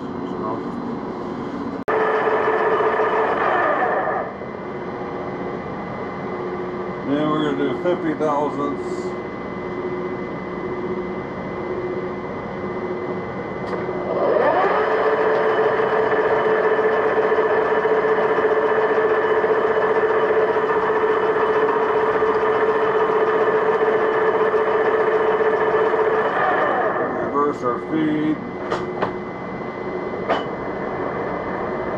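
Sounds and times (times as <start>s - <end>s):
motor whining: 1.9s - 4.4s, 13.6s - 27.4s
metal lathe humming: 13.7s - 28.4s.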